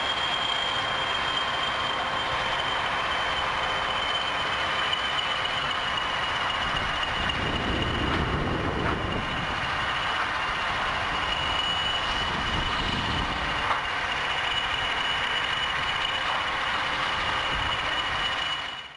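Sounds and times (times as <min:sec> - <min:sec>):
low engine rumble: 0:00.0 - 0:18.8
high-pitched whine: 0:00.0 - 0:18.9.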